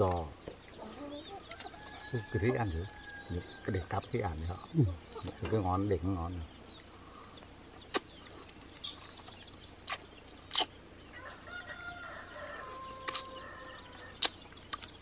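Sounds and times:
chicken clucking: 0.0s - 3.2s, 4.2s - 5.7s
bugs being peeled and chewed: 4.1s - 5.5s, 7.8s - 10.8s, 13.0s - 13.4s, 14.1s - 15.0s.

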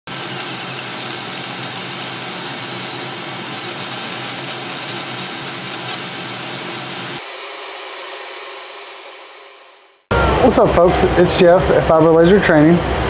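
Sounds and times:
laser engraver hissing: 0.1s - 10.1s.

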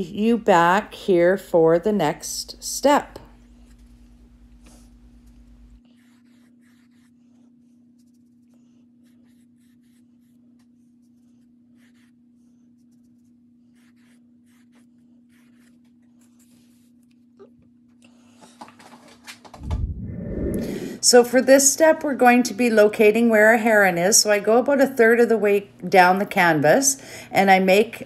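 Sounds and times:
low hum: 19.6s - 21.2s.

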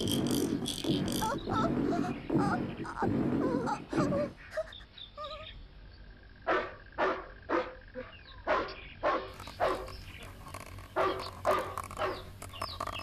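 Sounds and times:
dog barking: 6.5s - 7.8s, 8.5s - 9.9s, 11.0s - 12.2s.

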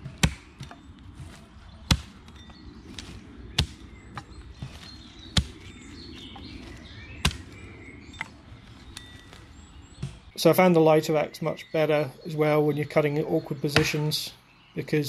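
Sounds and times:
axe chopping branches: 0.0s - 5.7s, 6.3s - 7.6s, 13.8s - 14.1s
small birds chirping: 0.0s - 15.0s.

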